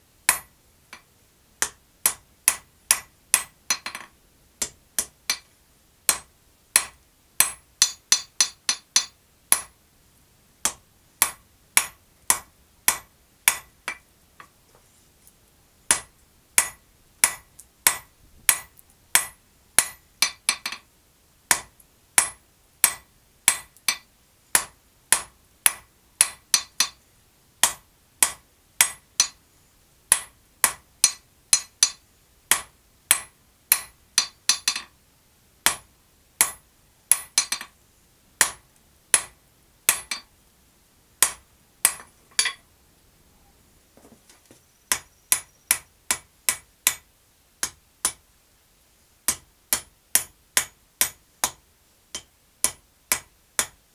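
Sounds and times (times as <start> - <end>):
hammer striking steel on anvil: 0.3 - 1.0, 1.6 - 5.5, 6.1 - 9.8, 10.6 - 14.0, 15.9 - 20.8, 21.5 - 27.0, 27.6 - 29.4, 30.1 - 34.9, 35.6 - 35.8, 36.4 - 37.7, 38.4 - 39.3, 39.9 - 40.3, 41.2 - 42.6.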